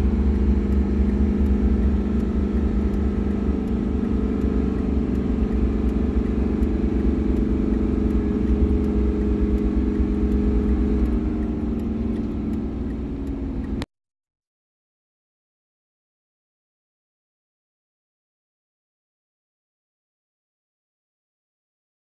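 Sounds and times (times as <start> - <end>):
diesel engine at full throttle: 0.0 - 13.9.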